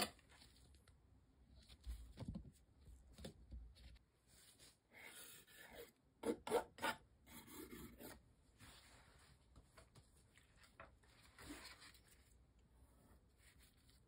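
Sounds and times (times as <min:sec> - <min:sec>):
palette knife scraping canvas: 0:04.9 - 0:08.2.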